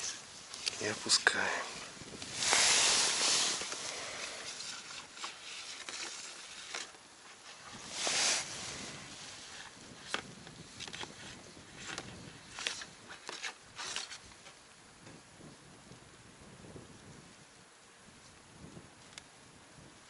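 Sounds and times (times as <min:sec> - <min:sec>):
clothing and gear rustling: 0:00.0 - 0:14.2.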